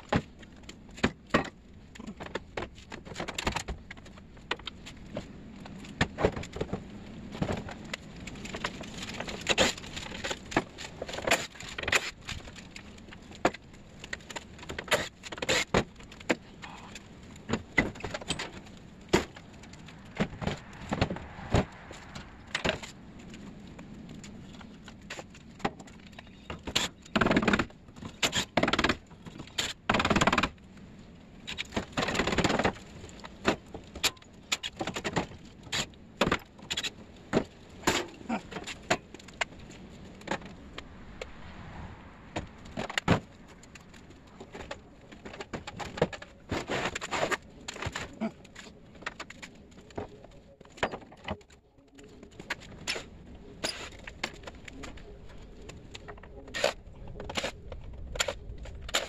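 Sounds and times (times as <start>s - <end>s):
metal parts clanking and scraping: 8.5s - 12.4s, 17.5s - 23.0s, 52.5s - 55.0s, 56.0s - 59.0s.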